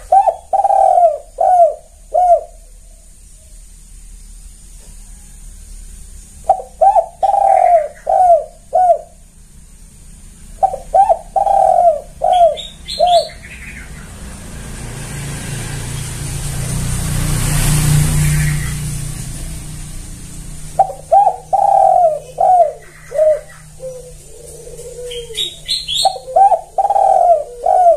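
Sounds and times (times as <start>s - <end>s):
dove cooing: 0.0s - 3.6s, 6.3s - 9.3s, 10.4s - 14.5s, 17.8s - 27.9s
rushing noise with low hum: 0.0s - 27.9s.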